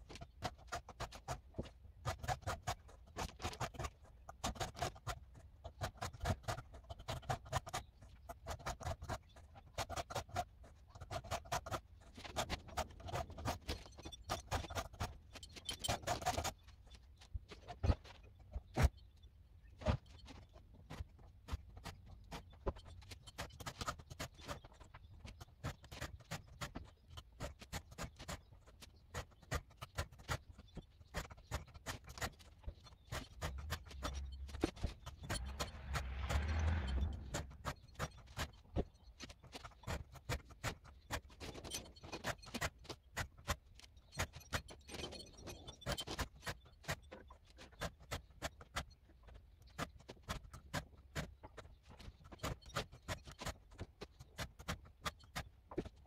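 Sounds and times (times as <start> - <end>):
file scraping chainsaw chain: 0.2 - 16.7, 29.1 - 49.0.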